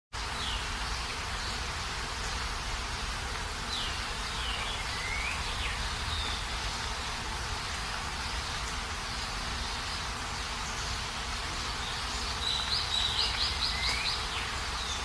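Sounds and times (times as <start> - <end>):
steady hiss: 0.2 - 15.0
bird chirps: 3.7 - 6.6, 11.7 - 15.0.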